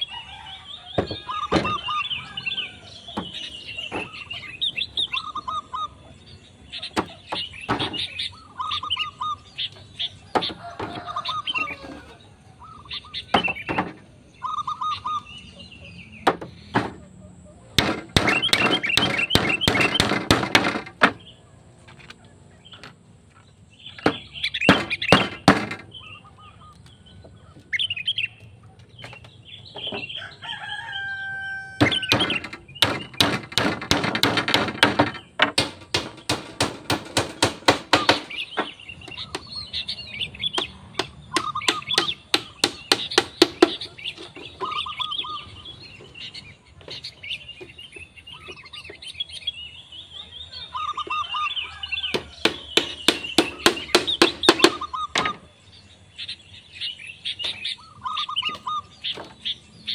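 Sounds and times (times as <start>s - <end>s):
birds calling faintly: 0.0s - 59.9s
hammer driving nails into bamboo: 17.8s - 21.2s, 24.0s - 25.9s, 31.8s - 39.5s, 40.6s - 44.4s, 52.1s - 55.4s.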